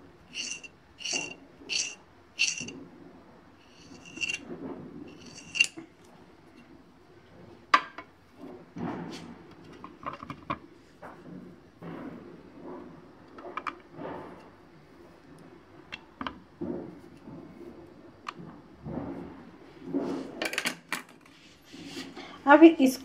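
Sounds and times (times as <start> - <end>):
knife cutting dough on stone board: 0.3 - 2.7.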